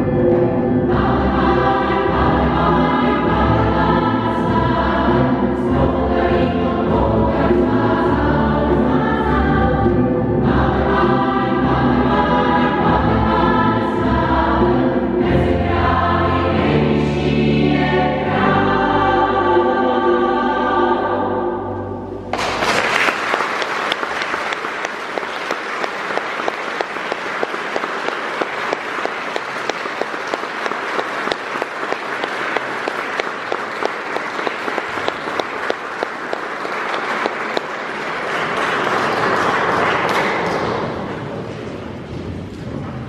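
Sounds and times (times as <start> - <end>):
choir and strings holding chord: 0.0 - 22.3
audience applause: 22.3 - 41.5.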